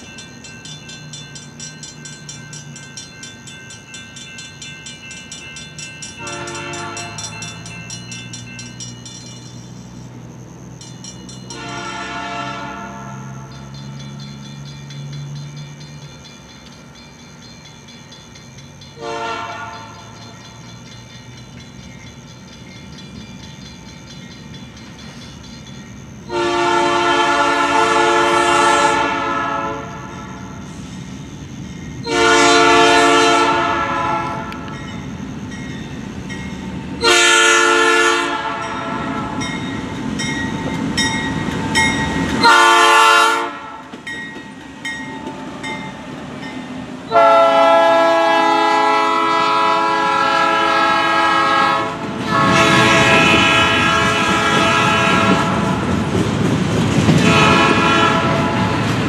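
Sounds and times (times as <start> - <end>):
engine and wheels rumbling: 0.0 - 59.0
locomotive air horn: 6.2 - 7.2, 11.5 - 13.4, 19.0 - 20.0, 26.3 - 30.2, 32.1 - 34.7, 37.0 - 39.4, 42.4 - 43.8, 47.1 - 55.8, 57.2 - 58.9.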